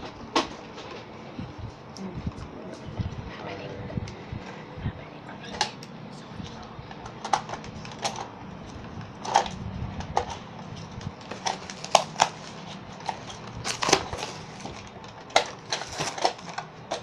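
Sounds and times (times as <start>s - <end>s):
plastic packaging crackling: 6.9s - 17.0s.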